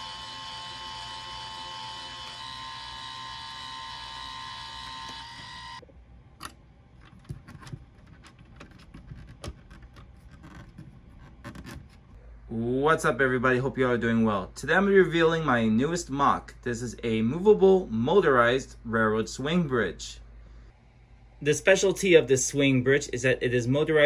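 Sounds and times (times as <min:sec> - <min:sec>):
electric motor whine: 0:00.0 - 0:05.8.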